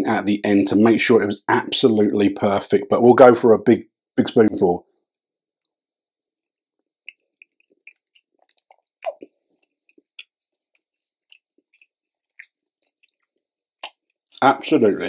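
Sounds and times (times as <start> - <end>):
man chewing food: 6.4 - 14.4.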